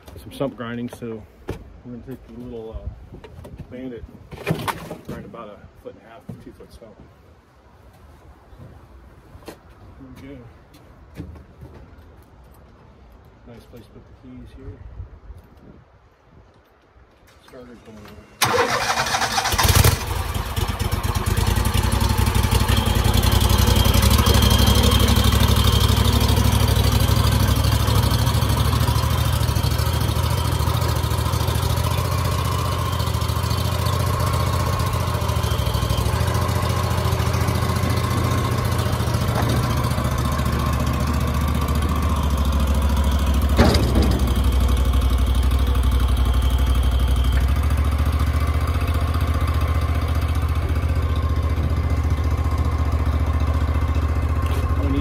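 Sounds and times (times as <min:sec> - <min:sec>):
stump grinder engine running: 0:18.4 - 0:55.0.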